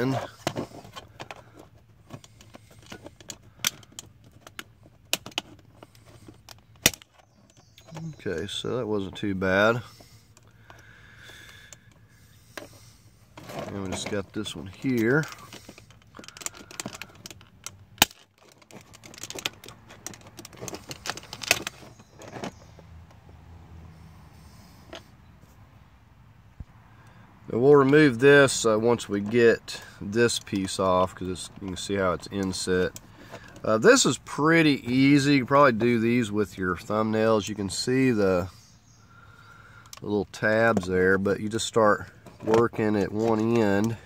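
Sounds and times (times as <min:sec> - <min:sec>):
plastic pry tool clicking and scraping: 0:00.2 - 0:08.2, 0:14.8 - 0:22.6.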